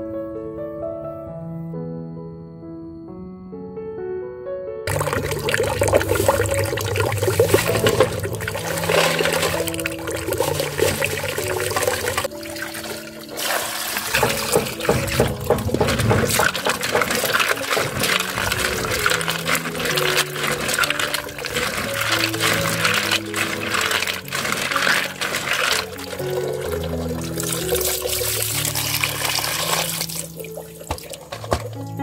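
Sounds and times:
soft background music: 0.0s - 32.0s
water splashing in a metal pot: 4.9s - 32.0s.

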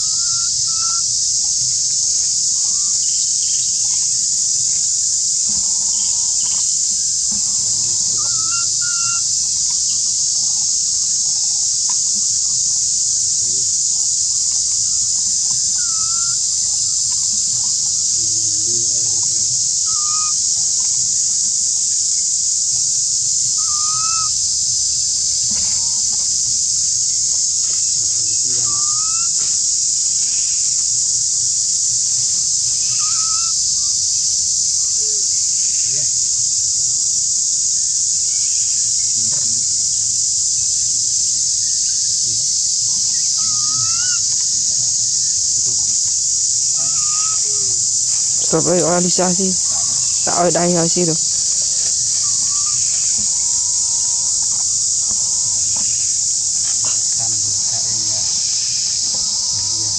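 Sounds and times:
rising chirp-like calls: 0.0s - 1.0s, 7.9s - 9.3s, 15.7s - 16.9s, 19.8s - 20.4s, 23.6s - 24.4s, 28.4s - 29.4s, 32.8s - 33.6s, 43.2s - 44.4s, 46.6s - 59.9s
insects droning: 0.0s - 59.9s.

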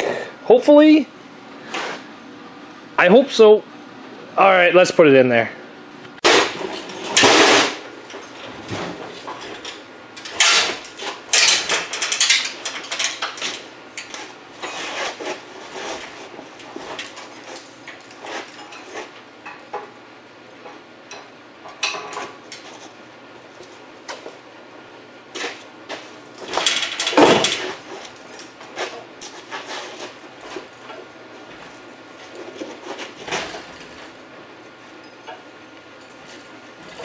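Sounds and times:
metal clanks and rattles: 6.2s - 20.0s, 20.6s - 22.9s, 25.4s - 34.2s, 35.0s - 37.0s.

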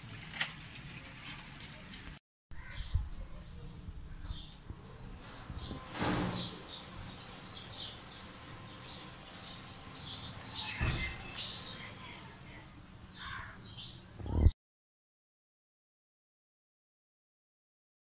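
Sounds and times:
small birds chirping: 2.6s - 14.5s
loud bump: 5.6s - 6.6s.

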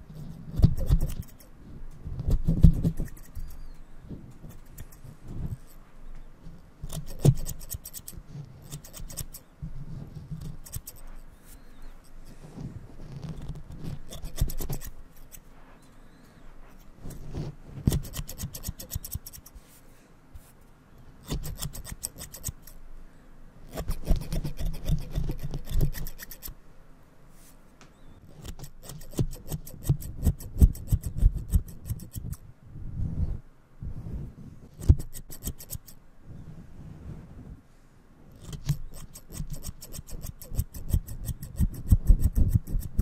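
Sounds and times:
scissors snipping: 0.5s - 1.5s, 2.4s - 3.6s, 6.8s - 9.4s, 10.4s - 11.0s, 13.2s - 15.4s, 17.9s - 19.5s, 21.2s - 22.8s, 23.7s - 26.6s, 28.3s - 32.4s, 34.8s - 36.0s, 38.3s - 43.0s
blades rubbing furry microphone cover: 2.2s - 5.8s, 6.4s - 19.7s.

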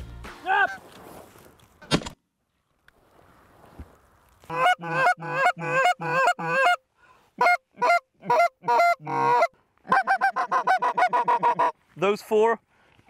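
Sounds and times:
geese honking: 4.5s - 6.8s, 7.4s - 11.8s.

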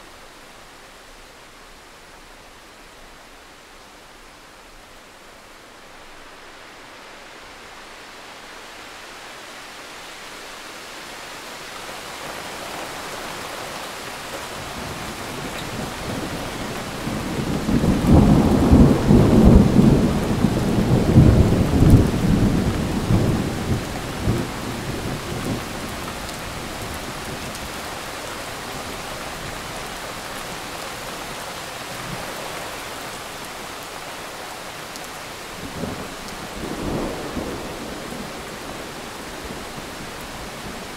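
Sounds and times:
rain falling: 0.0s - 40.9s
rolling thunder: 15.8s - 26.0s.

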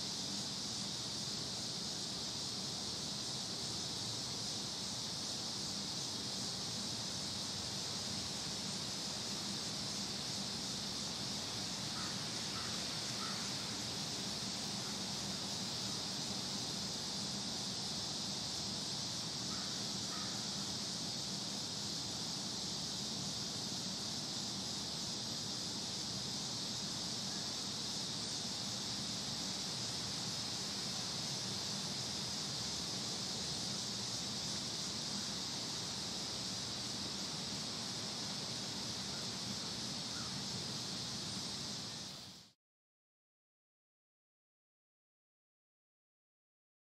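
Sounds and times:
high hiss-like drone: 0.0s - 42.6s.

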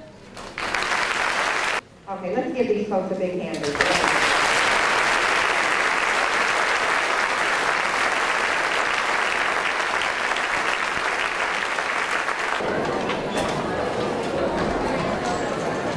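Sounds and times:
audience applauding: 0.4s - 1.8s, 3.6s - 12.6s.

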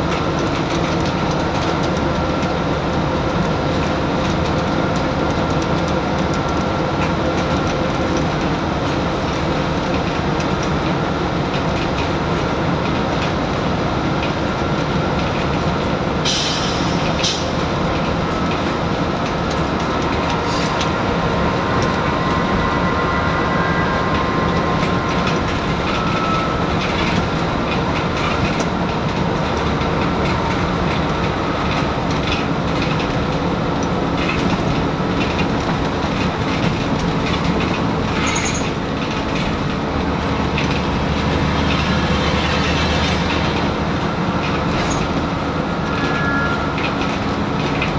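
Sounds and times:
bus body rattles: 0.0s - 22.8s, 24.2s - 45.8s
diesel bus engine drone: 0.0s - 47.9s
road and tyre noise: 0.0s - 47.9s.

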